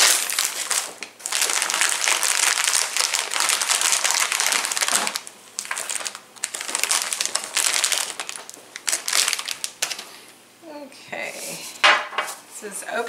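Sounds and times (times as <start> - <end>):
plastic bag crinkling: 0.0 - 10.3.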